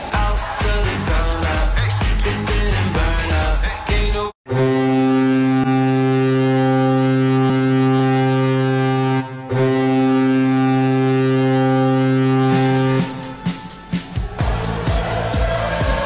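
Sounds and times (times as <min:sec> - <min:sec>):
low goal horn blast: 0:04.5 - 0:14.5.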